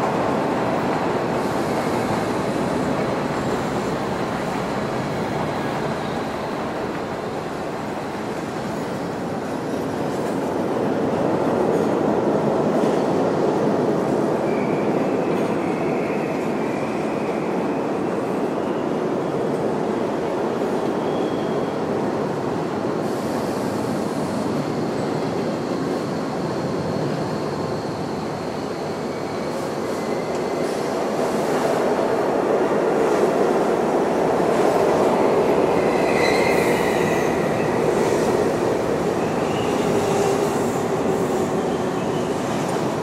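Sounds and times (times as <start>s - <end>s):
subway train running: 0.0s - 43.0s
high wheel squeals: 35.9s - 37.8s.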